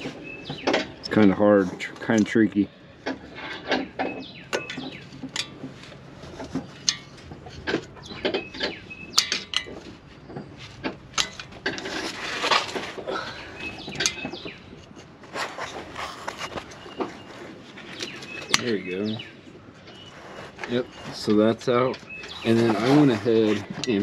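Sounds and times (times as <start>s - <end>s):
scraping rustle: 9.6s - 24.0s
hand tool clicks and scrapes: 10.9s - 13.0s, 13.6s - 18.9s, 19.9s - 24.0s.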